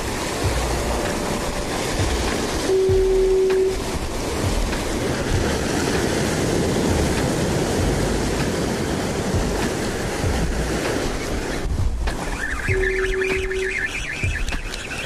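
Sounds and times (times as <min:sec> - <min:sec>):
ocean surf breaking on rocks: 0:00.0 - 0:15.0
wind buffeting microphone: 0:00.0 - 0:15.0.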